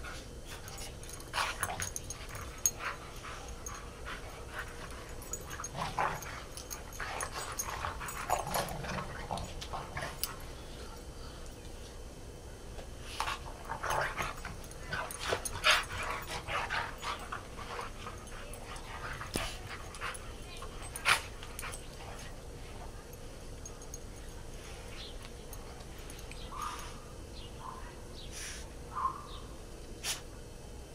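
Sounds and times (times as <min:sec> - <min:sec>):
dogs playing rough vocalizing: 0:00.0 - 0:11.1, 0:13.1 - 0:23.0.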